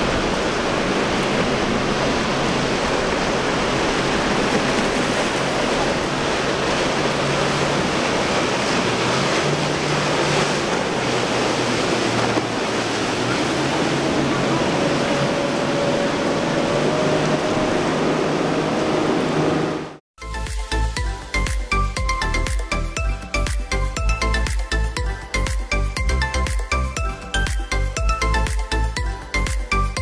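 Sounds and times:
boat engine drone: 0.0 - 30.0
waves and spray rushing: 0.0 - 30.0.

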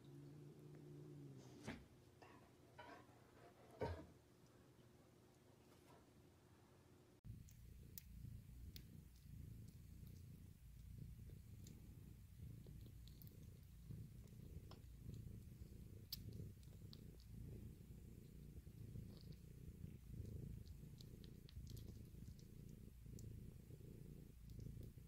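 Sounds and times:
cat purring: 0.0 - 25.0
faint small clicks: 7.3 - 11.9, 20.5 - 23.4, 24.2 - 25.0.

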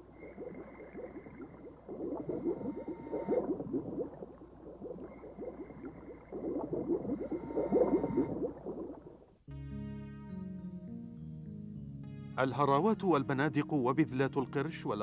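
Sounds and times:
regulator bubbling underwater: 0.0 - 9.4
thin steady whistle: 2.2 - 3.5, 7.1 - 8.3.

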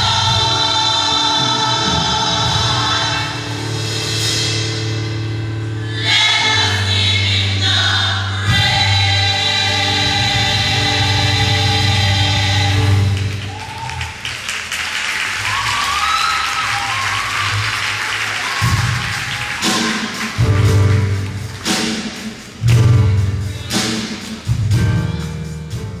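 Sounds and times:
choir singing held chord: 0.0 - 4.0, 5.8 - 13.4
band bass and drum hits: 0.0 - 13.8, 18.4 - 26.0
audience applauding: 13.0 - 22.2.

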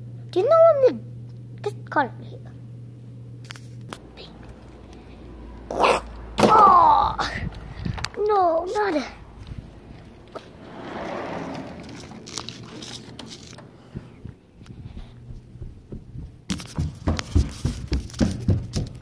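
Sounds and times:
phone handling rubbing and clicks: 12.2 - 14.3.

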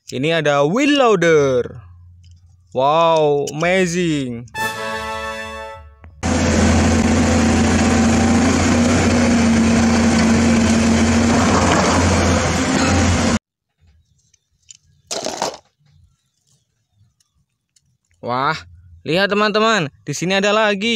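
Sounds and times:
bulldozer diesel engine running: 5.2 - 13.4
toy vehicles clattering: 14.3 - 15.8.

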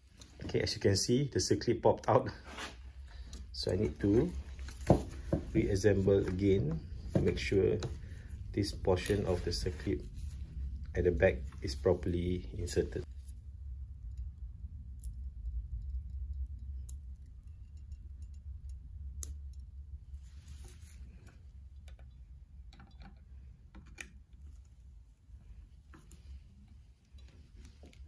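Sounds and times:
steady low hum: 0.0 - 28.0
small metal clicks and ticks: 15.0 - 19.7.

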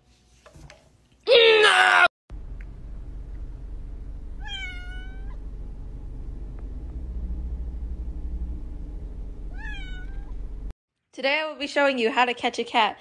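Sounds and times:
steady low rumble: 2.3 - 10.8
cat meowing: 4.4 - 5.4, 9.5 - 10.4.

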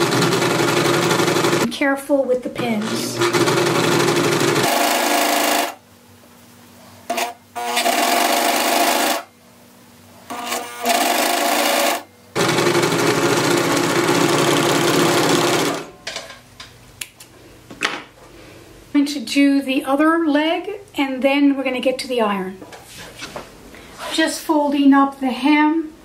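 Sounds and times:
overlock sewing machine running: 0.0 - 1.7, 2.8 - 5.8, 7.1 - 9.3, 10.4 - 15.9.

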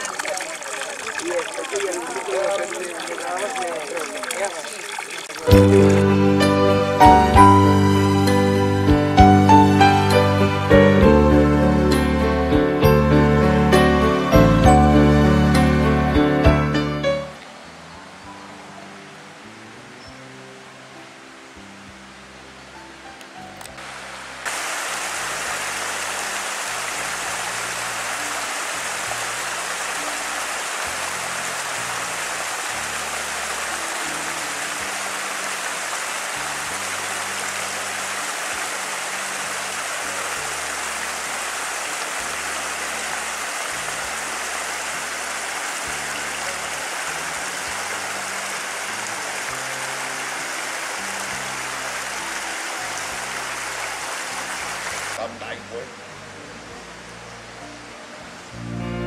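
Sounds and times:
stream rushing over rocks: 0.0 - 10.6, 17.0 - 55.3
background music: 5.4 - 24.4, 25.1 - 59.0.

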